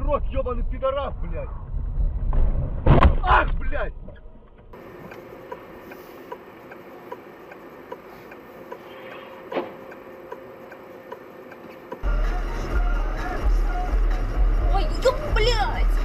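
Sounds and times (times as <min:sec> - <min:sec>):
turn signal clicking: 0:04.8 - 0:12.0.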